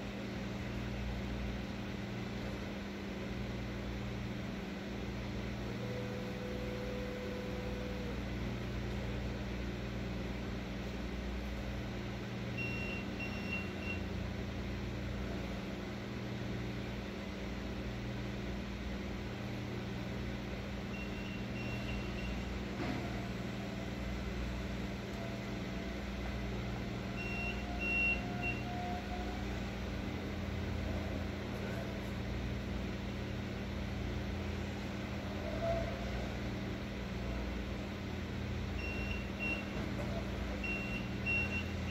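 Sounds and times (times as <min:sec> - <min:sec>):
high warning beeps: 0:27.2 - 0:28.8, 0:40.6 - 0:41.9.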